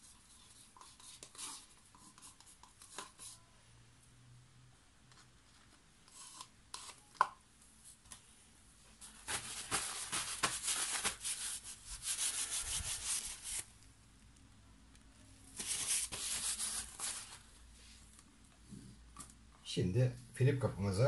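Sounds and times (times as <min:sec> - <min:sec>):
paper towel rubbing hands: 0:09.0 - 0:13.7, 0:15.5 - 0:17.4.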